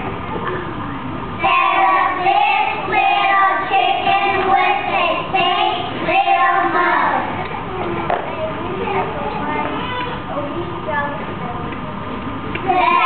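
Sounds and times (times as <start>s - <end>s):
children singing together: 1.4s - 7.6s, 12.6s - 13.0s.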